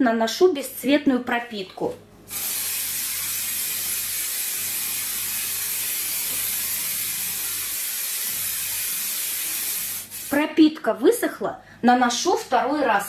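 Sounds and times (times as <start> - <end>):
aerosol can spraying hiss: 2.3 - 10.4.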